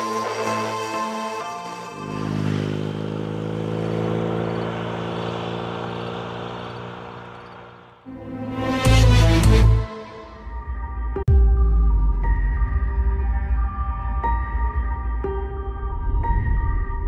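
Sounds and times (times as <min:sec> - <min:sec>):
motorcycle engine riding away: 0:00.1 - 0:08.1.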